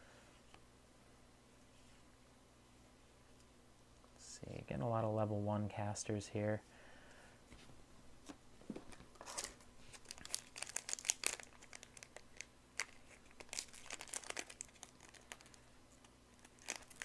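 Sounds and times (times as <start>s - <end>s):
wrapper crinkling and tearing: 9.2s - 15.6s, 16.3s - 17.0s.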